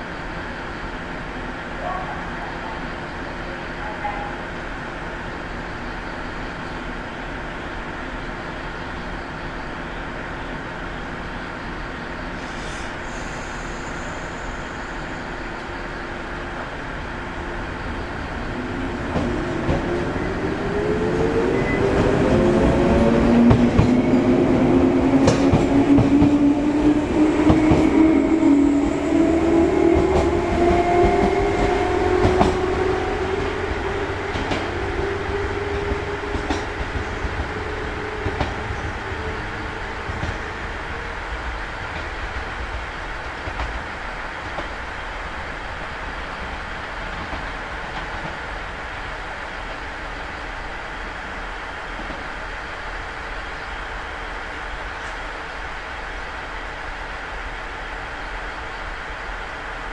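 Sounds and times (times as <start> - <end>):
train wheels clacking: 21.8 - 28.6, 29.5 - 39.1.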